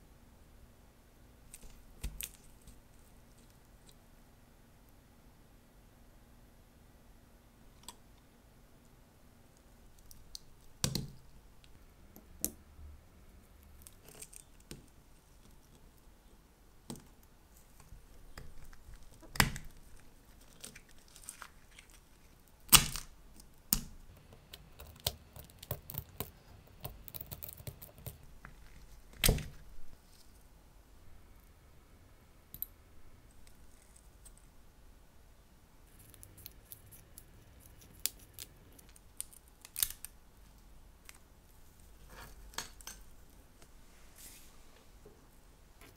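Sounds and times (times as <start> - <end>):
sharp snaps of parts popping: 22.7 - 28.2.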